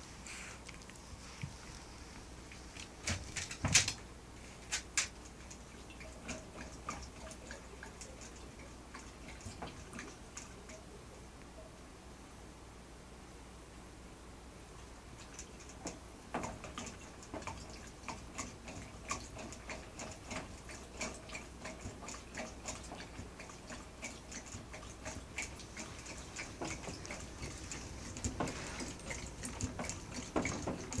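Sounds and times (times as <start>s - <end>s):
dog lapping at water bottle nozzle: 5.4s - 10.8s, 15.2s - 31.0s.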